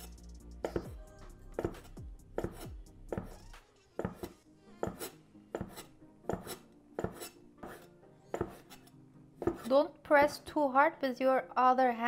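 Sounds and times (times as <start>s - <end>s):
knife chopping on wooden board: 0.6s - 1.0s, 1.6s - 3.4s, 4.0s - 10.4s.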